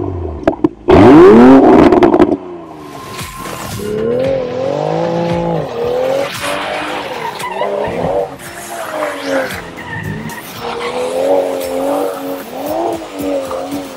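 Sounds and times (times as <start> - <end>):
car engine revving: 0.0 - 13.9
tyres skidding on wet tarmac: 2.8 - 13.9.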